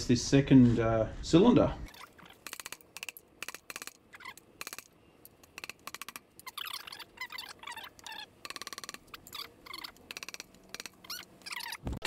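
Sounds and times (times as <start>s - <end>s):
chirpy squeaks: 1.9s - 2.8s, 3.5s - 4.9s, 5.6s - 12.0s.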